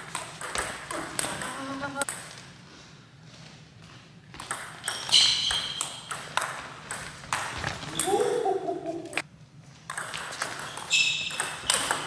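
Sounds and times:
table tennis ball clicking: 11.3 - 12.0.

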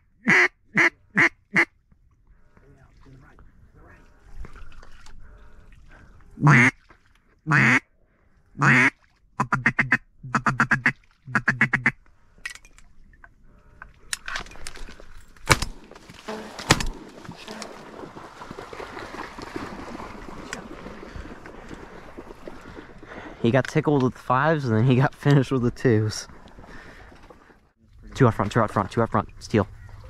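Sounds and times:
duck call quacks: 0.0 - 1.7, 6.4 - 6.8, 7.5 - 7.8, 8.6 - 12.0
shotgun shots: 15.4 - 15.9.

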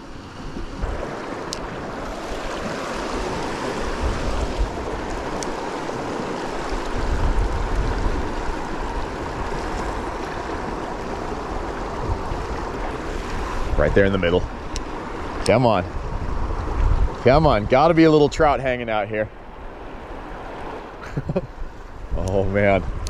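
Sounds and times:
creek water rushing: 0.0 - 23.0.

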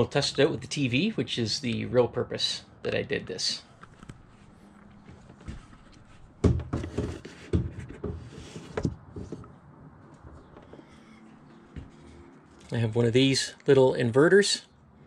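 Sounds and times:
handling knocks and rustles: 3.9 - 11.0.

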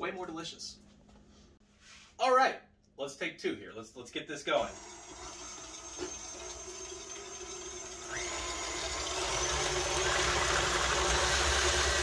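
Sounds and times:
stand mixer motor: 4.7 - 12.0.

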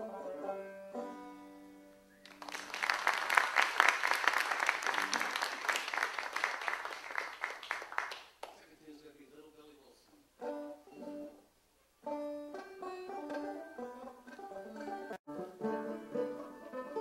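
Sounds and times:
banjo playing: 0.0 - 2.1, 10.4 - 17.0
audience applause: 2.2 - 8.6.

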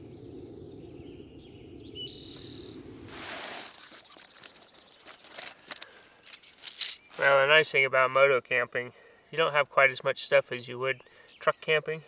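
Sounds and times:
birds calling: 0.0 - 7.7, 10.4 - 12.0
tent poles and gear rattling: 3.1 - 7.5.

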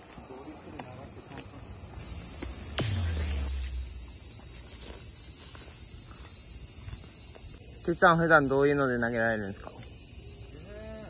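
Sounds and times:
insects chirring: 0.0 - 11.0
tone sweeping down: 1.9 - 5.0.

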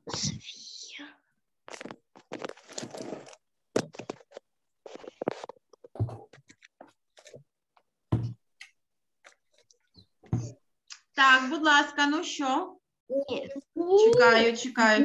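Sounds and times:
rustles and scrapes at desks: 1.6 - 8.4, 9.2 - 10.7.

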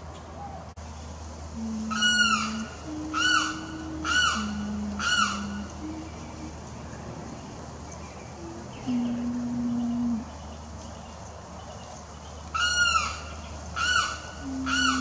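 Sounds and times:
low steady tones: 0.8 - 11.1, 14.3 - 15.0.

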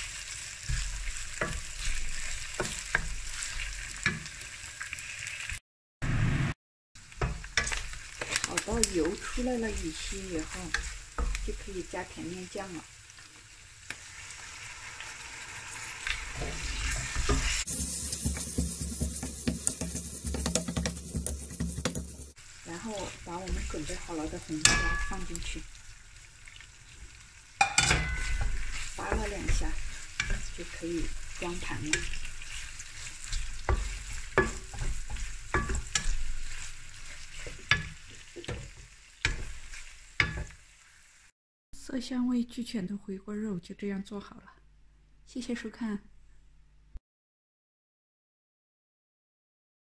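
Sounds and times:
wooden spatula scraping: 0.0 - 4.5, 7.2 - 12.2, 15.8 - 25.7, 28.0 - 40.6
food sizzling in a pan: 0.0 - 5.6, 6.4 - 41.4
spatula knocking against pan: 18.2 - 22.3.

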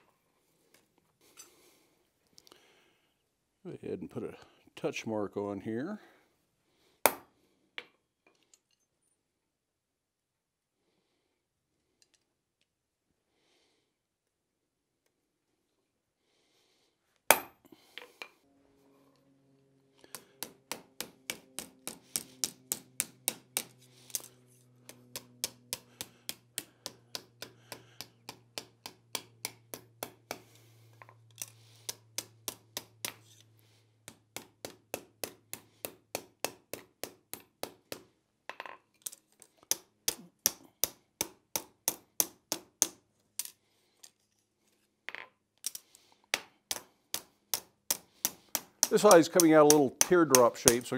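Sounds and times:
hammer striking metal on anvil: 17.3 - 17.6, 46.7 - 50.9
hammer striking stamp: 48.6 - 50.9.

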